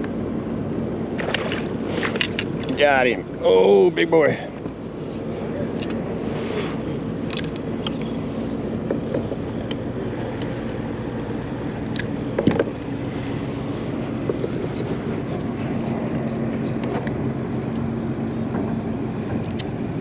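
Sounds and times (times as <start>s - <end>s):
steady motor hum: 0.0s - 20.0s.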